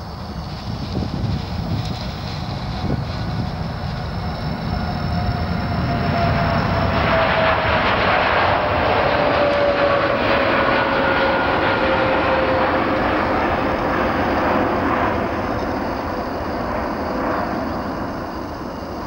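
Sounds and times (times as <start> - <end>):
jet engine whine falling: 0.0 - 19.0
jet engines roaring: 0.0 - 19.0.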